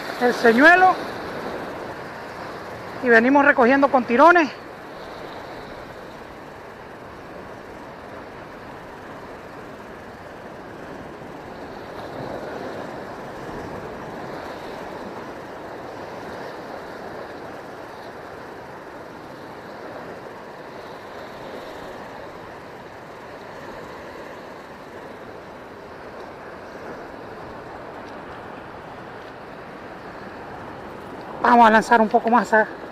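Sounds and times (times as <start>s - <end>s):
surf breaking over rocks: 0.0s - 6.7s.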